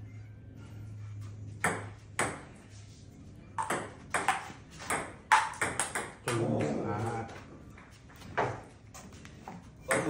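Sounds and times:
low steady hum: 0.0s - 6.3s.

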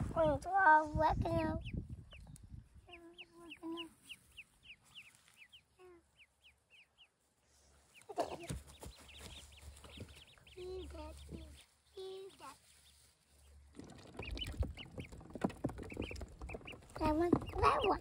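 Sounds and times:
ducklings peeping: 1.2s - 18.0s
steps rustling through grass: 3.9s - 5.5s, 7.3s - 13.6s.

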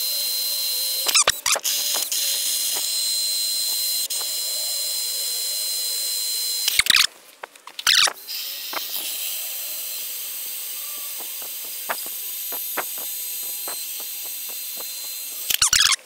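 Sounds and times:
drill grinding into tile: 0.0s - 7.1s, 7.8s - 16.0s
short loud bursts: 10.1s - 16.0s.

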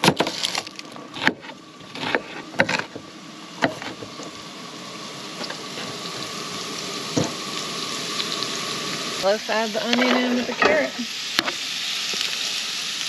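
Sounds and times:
vegetables sizzling in oil: 0.0s - 13.0s
knife chopping on cutting board: 2.0s - 2.9s.

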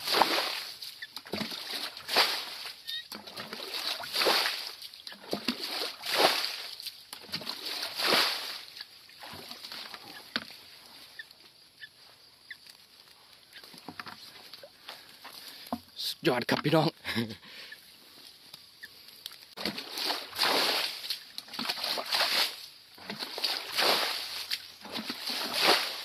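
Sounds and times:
water gushing from bucket: 0.0s - 10.2s, 19.6s - 26.0s
faint rustles and ticks: 9.6s - 16.9s, 17.6s - 19.6s.

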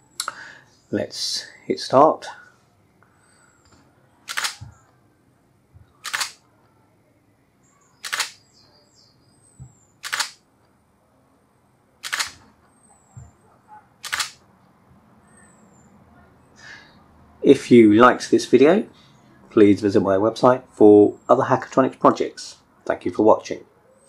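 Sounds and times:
camera shutter clacking: 4.3s - 4.6s, 6.0s - 6.4s, 8.0s - 8.4s, 10.0s - 10.4s, 12.0s - 12.4s, 14.0s - 14.4s.

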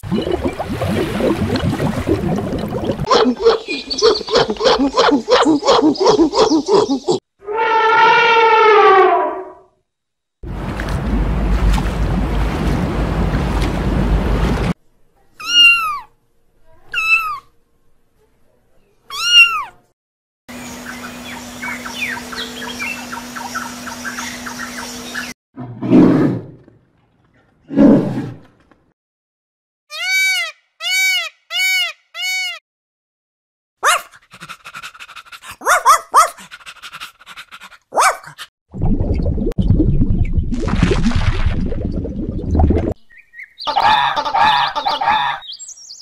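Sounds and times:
squeaks and chirps: 16.9s - 17.5s, 19.1s - 19.7s.

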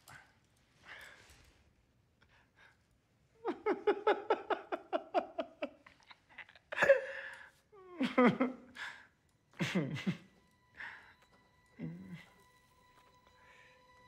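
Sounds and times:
rhythmic pitched laughter: 3.4s - 7.2s, 7.9s - 13.0s.

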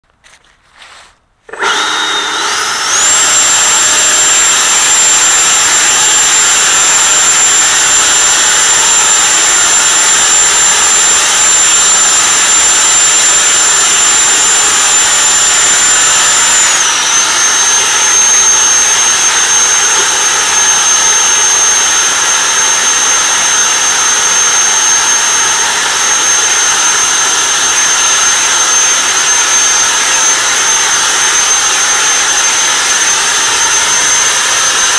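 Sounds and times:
leaf blower whining: 1.5s - 34.9s.

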